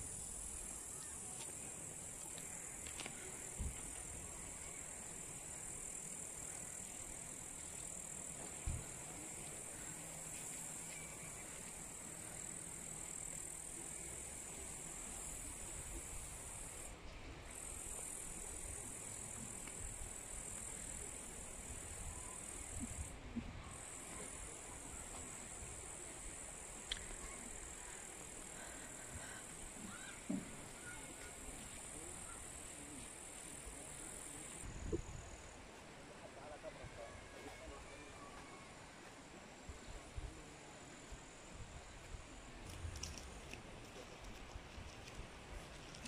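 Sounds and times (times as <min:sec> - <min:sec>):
insects buzzing: 0:00.0 - 0:35.7.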